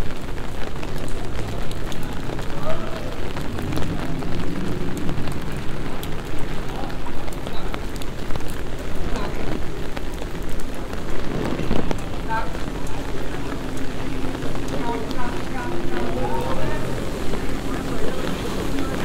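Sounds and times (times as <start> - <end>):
rain falling on wet paving: 0.0 - 19.0.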